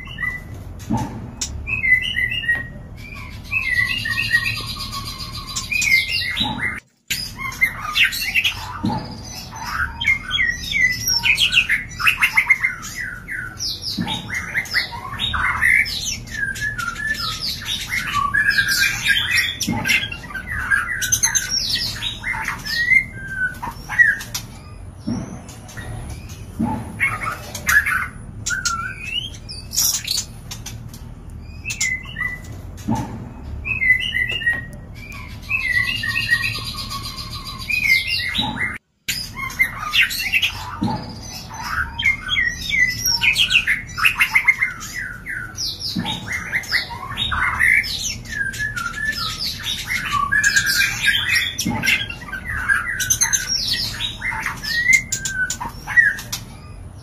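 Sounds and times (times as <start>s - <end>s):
birds chirping and whistling: 0.0s - 57.0s.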